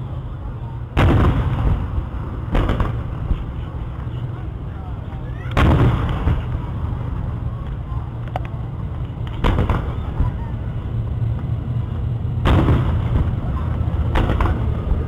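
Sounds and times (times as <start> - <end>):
low rumble: 0.0 - 15.0
firework shells booming: 0.9 - 4.2, 5.5 - 6.9, 9.3 - 10.4, 12.4 - 15.0.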